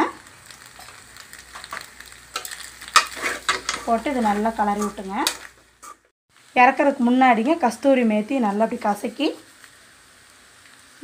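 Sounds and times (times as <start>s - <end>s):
metal spoon scraping a pan: 0.8s - 6.1s.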